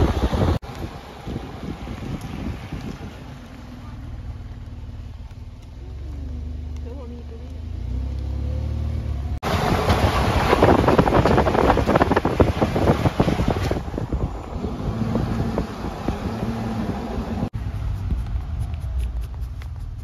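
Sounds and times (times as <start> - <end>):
wind buffeting microphone: 0.0 - 4.6, 9.4 - 19.0
car road noise: 0.0 - 20.0.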